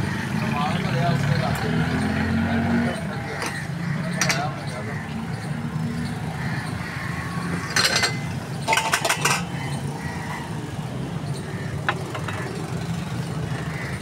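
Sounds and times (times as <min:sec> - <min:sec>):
street traffic hum: 0:00.0 - 0:14.0
metal clinking and clattering: 0:07.7 - 0:09.5.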